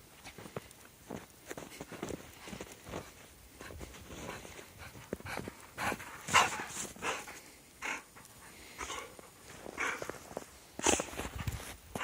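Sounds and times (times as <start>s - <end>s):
footsteps crunching in snow: 0.2s - 7.4s, 9.0s - 12.0s
dog panting: 4.1s - 11.5s.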